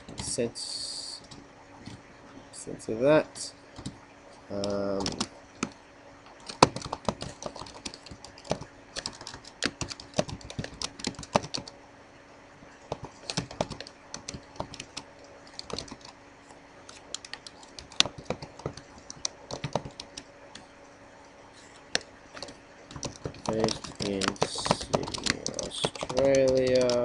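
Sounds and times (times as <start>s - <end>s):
typing on computer keyboard: 4.6s - 5.8s, 6.4s - 11.8s, 12.9s - 16.2s, 16.9s - 20.3s, 21.9s - 27.0s.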